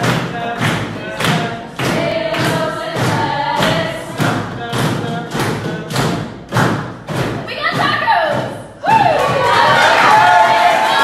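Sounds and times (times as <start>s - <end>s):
group singing in unison: 0.0s - 6.5s, 9.3s - 11.0s
steady beat of thumps: 0.0s - 9.9s.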